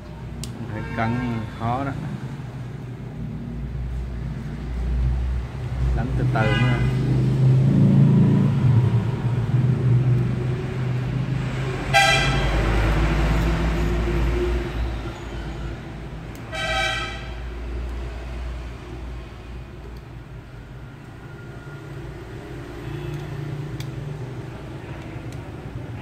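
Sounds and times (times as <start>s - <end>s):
vehicle horn toots: 6.4s - 7.0s, 11.9s - 12.6s, 16.5s - 17.4s.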